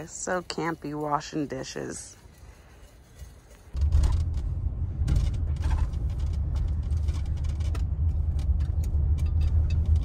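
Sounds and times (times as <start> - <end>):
engine and road noise rumble: 0.0 - 10.0
light clicks and rattles: 2.3 - 10.0.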